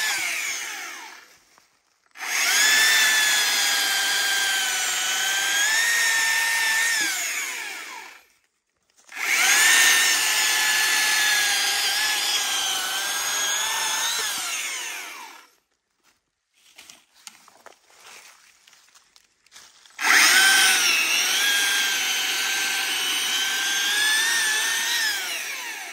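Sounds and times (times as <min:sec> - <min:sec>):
chainsaw whining through wood: 0:00.0 - 0:01.5, 0:02.1 - 0:08.3, 0:09.1 - 0:15.6, 0:20.0 - 0:25.9.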